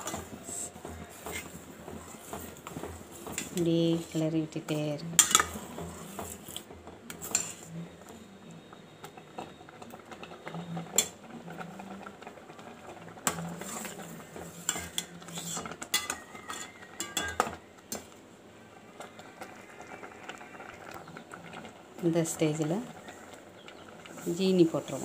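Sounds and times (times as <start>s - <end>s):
spoon scraping a steel pot: 0.0s - 4.3s, 5.2s - 7.7s, 13.2s - 17.5s.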